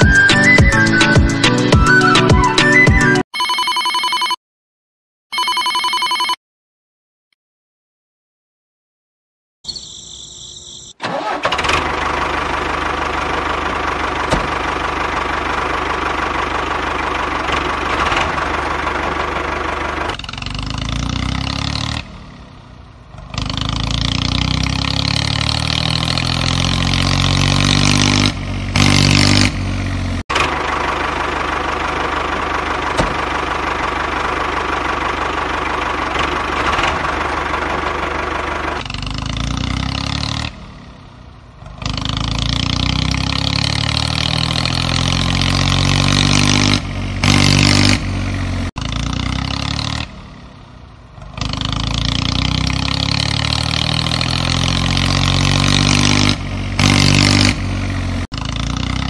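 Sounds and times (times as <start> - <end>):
small tractor motor humming: 11.0 - 20.4, 30.3 - 38.9.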